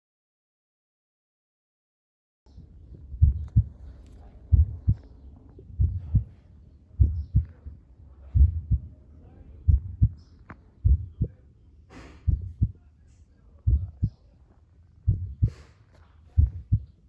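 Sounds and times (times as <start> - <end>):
heartbeat thuds: 2.9 - 6.4, 7.0 - 7.7, 8.3 - 8.9, 9.7 - 10.2, 10.8 - 11.4, 12.2 - 12.8, 13.7 - 14.2, 15.0 - 15.7, 16.3 - 17.0.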